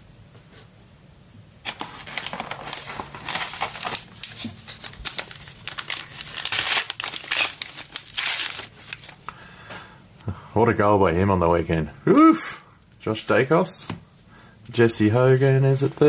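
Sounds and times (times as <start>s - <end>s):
wrapper tearing and crinkling: 1.6s - 9.2s.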